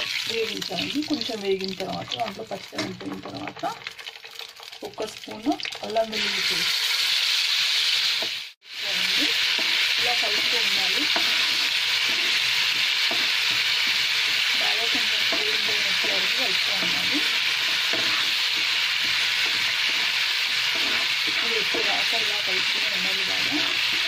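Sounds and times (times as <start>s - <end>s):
paste sizzling in hot oil: 0.0s - 24.0s
spoon scraping a pan: 9.0s - 24.0s.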